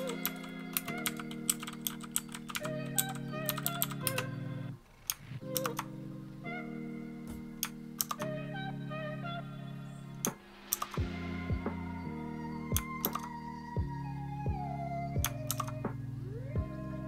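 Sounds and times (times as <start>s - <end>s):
mechanical keyboard keys clicking: 0.0s - 4.2s, 15.2s - 15.8s
background music of sustained chords: 0.0s - 4.8s, 5.4s - 17.0s.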